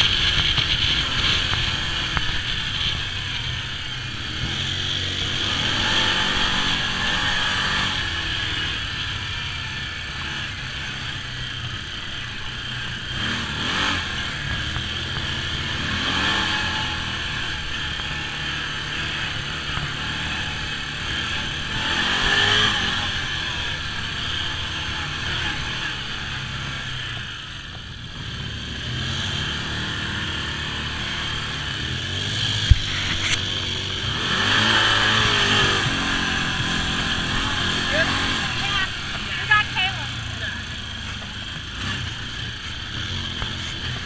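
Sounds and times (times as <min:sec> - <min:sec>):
rattling over bumps: 0:00.0 - 0:07.7
utility vehicle engine running: 0:00.0 - 0:44.0.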